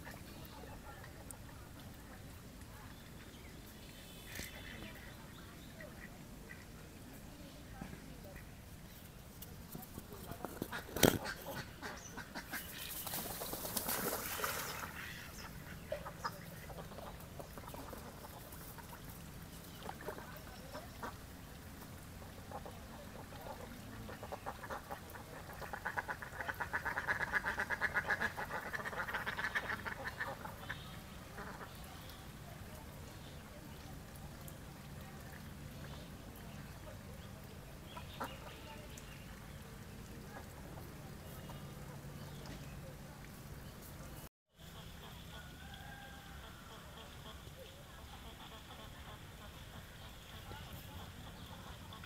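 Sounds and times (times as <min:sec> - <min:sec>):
ducks quacking: 0:10.6 - 0:13.0, 0:14.6 - 0:19.1, 0:22.5 - 0:31.9, 0:37.9 - 0:38.7, 0:46.4 - 0:52.0.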